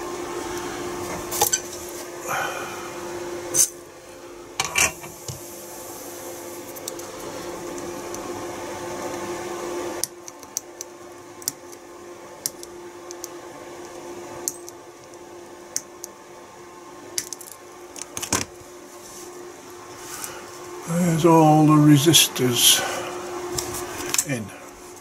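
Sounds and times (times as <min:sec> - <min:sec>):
steady hum: 0:00.0 - 0:25.0.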